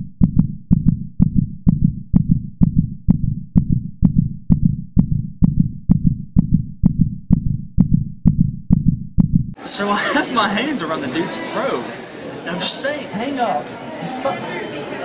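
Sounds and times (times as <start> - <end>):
heartbeat thumps: 0.0 - 9.6.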